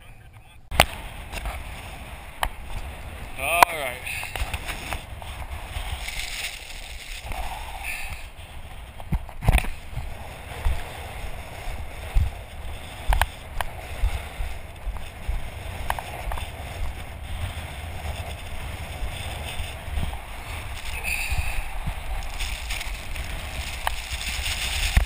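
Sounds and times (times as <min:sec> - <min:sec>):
wind buffeting microphone: 0:00.6 - 0:25.0.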